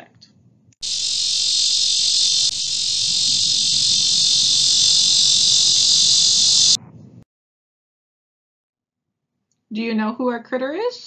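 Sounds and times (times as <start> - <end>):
cicada buzzing: 0.8 - 6.8.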